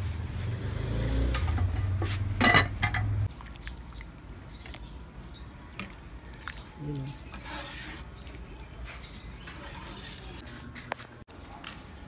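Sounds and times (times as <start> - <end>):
pots and utensils clattering: 1.3 - 3.2
ladle scraping metal pot: 7.2 - 8.5, 9.4 - 10.4.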